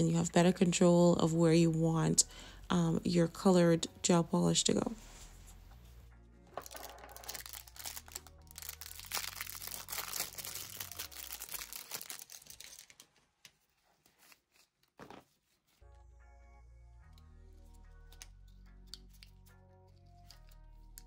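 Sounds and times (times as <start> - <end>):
packaging crackling and clicking: 6.5 - 13.3.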